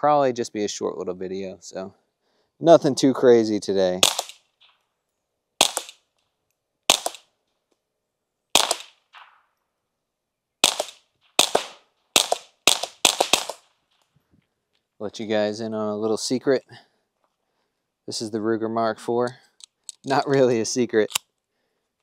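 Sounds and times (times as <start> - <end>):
suppressed pistol shots: 4.0 - 4.4, 5.6 - 6.1, 6.9 - 7.3, 8.6 - 9.5, 10.6 - 13.7.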